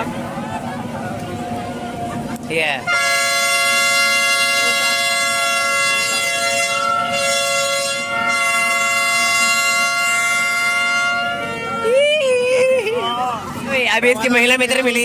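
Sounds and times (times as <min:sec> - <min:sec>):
two-note horn blast: 0:02.8 - 0:12.0.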